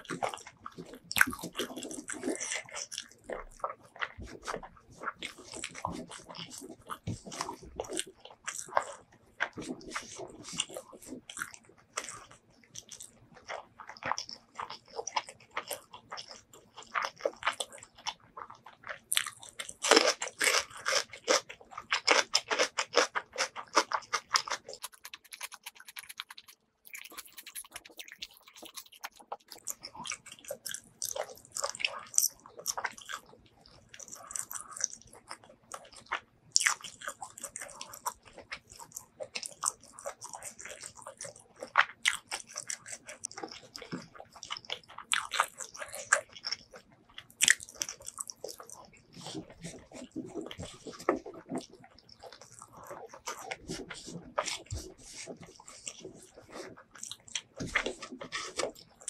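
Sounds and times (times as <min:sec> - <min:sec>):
close chewing with mouth clicks: 0:00.0 - 0:59.0.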